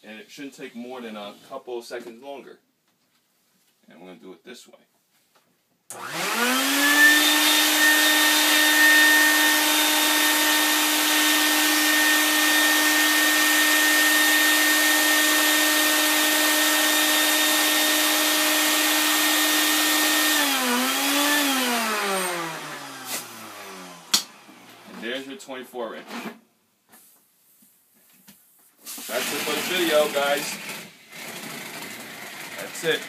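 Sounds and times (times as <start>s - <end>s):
vacuum motor whine: 5.9s - 25.0s.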